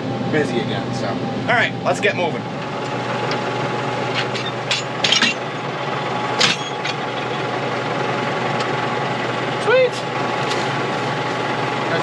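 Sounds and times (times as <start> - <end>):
tractor engine idling: 1.6 - 12.0
metal clicks and clanks: 4.1 - 5.5.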